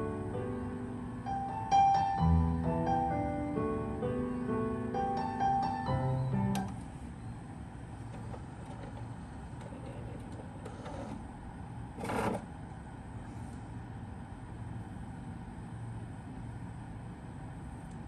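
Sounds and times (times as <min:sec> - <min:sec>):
cd changer mechanism whirring: 0:03.6 - 0:13.1.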